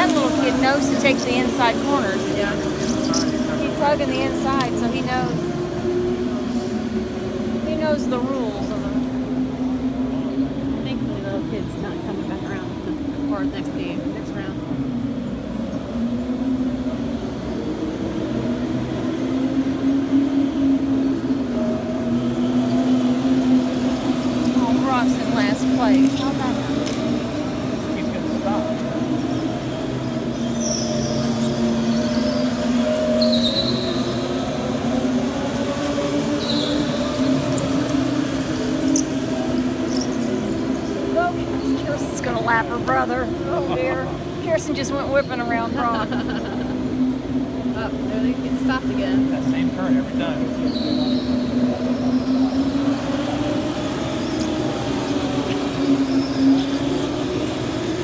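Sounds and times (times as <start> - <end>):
go-kart motors humming: 0.0 - 58.0
tyre squeals: 30.4 - 34.4, 36.2 - 37.7, 50.6 - 52.6.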